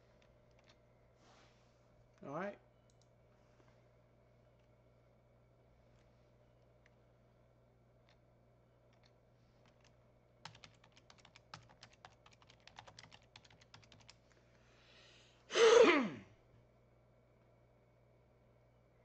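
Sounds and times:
computer keyboard typing: 9.0 - 14.2.

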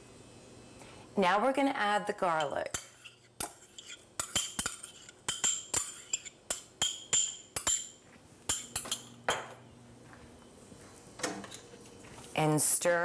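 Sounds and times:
spoon clinking on ceramic bowl: 2.4 - 9.5.

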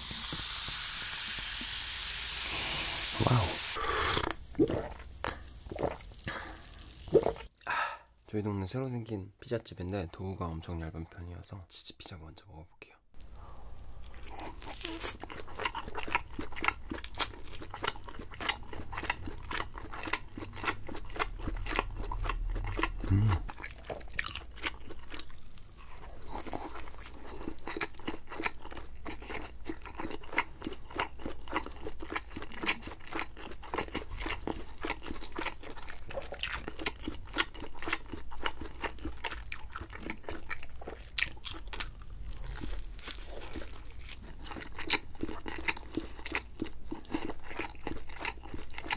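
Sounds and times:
crunching and chewing pizza: 13.4 - 48.9.

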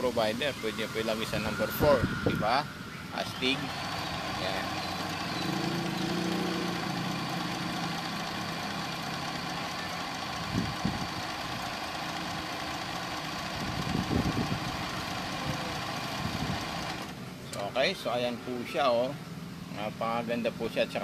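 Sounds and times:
sewing machine running: 3.5 - 17.1.

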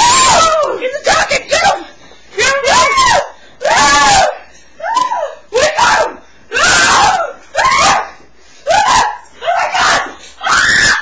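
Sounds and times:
person screaming: 5.0 - 8.1.

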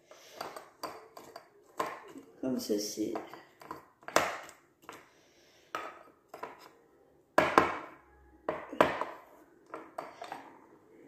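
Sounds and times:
metal spoon clinking on plastic: 0.2 - 2.3.

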